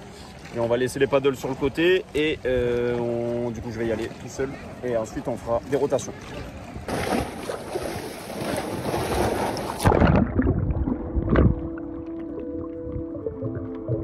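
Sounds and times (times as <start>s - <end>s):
seawater splashing: 0.0s - 11.7s
bubbles bursting underwater: 6.9s - 14.0s
muffled underwater rumbling: 8.4s - 14.0s.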